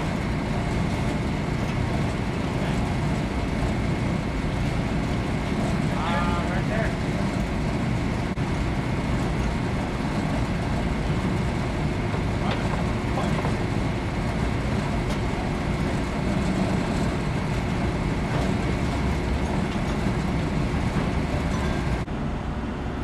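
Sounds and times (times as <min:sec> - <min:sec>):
diesel engine rumbling: 0:00.0 - 0:23.0.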